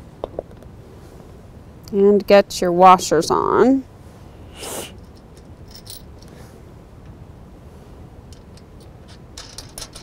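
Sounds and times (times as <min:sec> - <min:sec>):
low background noise: 0:00.0 - 0:10.0
metal washers clicking: 0:05.0 - 0:06.3, 0:08.3 - 0:10.0.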